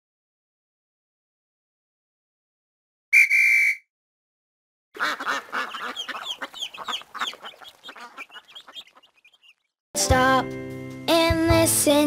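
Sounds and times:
ducklings calling: 5.0s - 9.7s.

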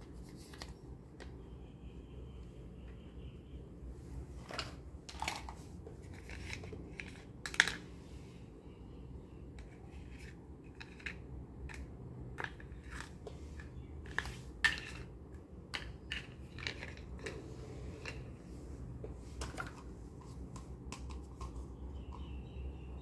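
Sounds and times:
plastic plates clicking and clacking: 4.4s - 7.8s, 10.7s - 18.4s.

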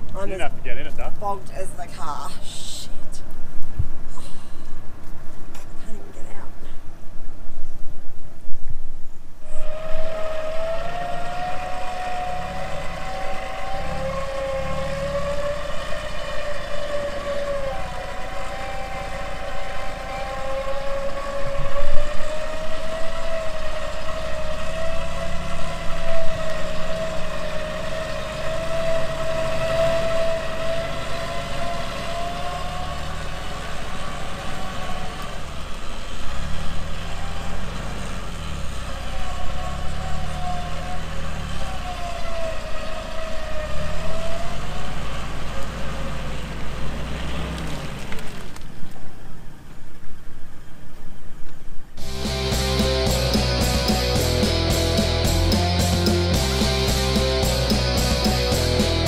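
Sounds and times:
vehicle engine rumbling: 0.0s - 50.9s, 51.8s - 59.0s
electric winch motor whining: 9.4s - 35.7s, 36.6s - 46.4s.

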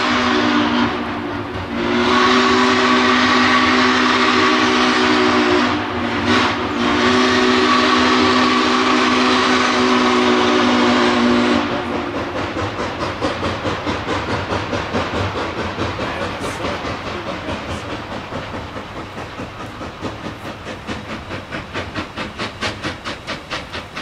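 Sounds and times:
steam whistle blowing: 0.0s - 12.1s
steam locomotive chuffing: 0.0s - 24.0s.

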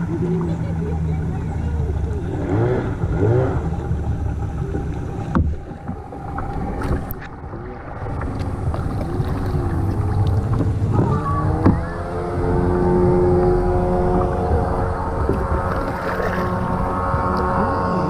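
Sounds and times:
people calling and chattering: 0.0s - 5.1s
low steady rumble: 0.0s - 18.0s.

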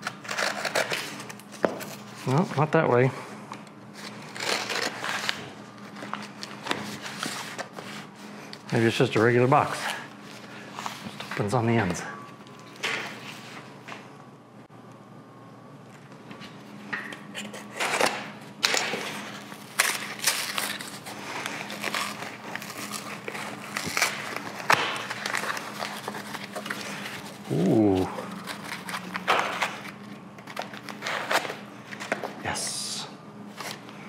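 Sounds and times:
packing tape and cardboard ripping: 0.0s - 1.8s, 4.0s - 8.0s, 17.5s - 31.6s.

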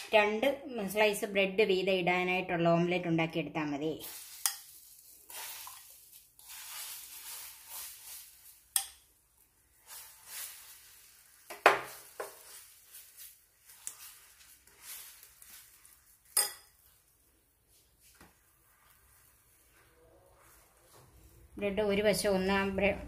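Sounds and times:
spoon scraping bowl and pan: 4.0s - 9.1s, 9.7s - 17.1s
egg sizzling in a pan: 4.0s - 17.3s.

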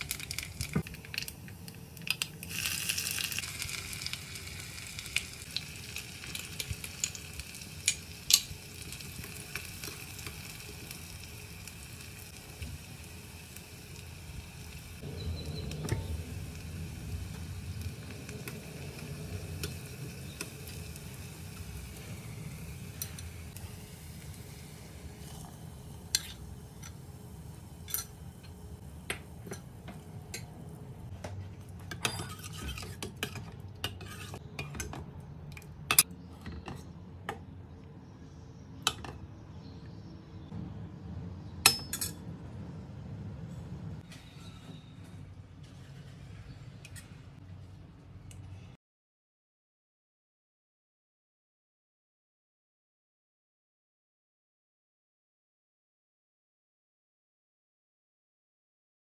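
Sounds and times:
spoon clinking on steel cookware: 27.9s - 28.2s, 41.6s - 42.2s.

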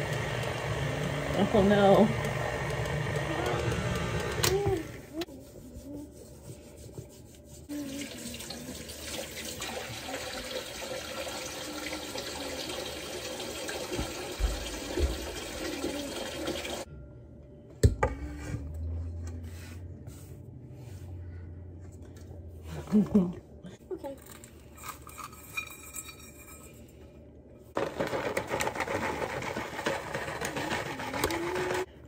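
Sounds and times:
tap water running: 7.7s - 16.9s.

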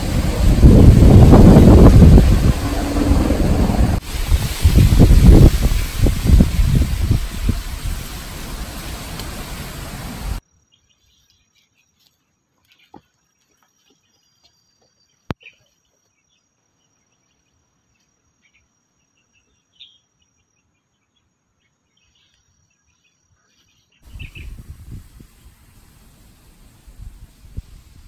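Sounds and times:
gusty low noise: 0.0s - 10.4s.

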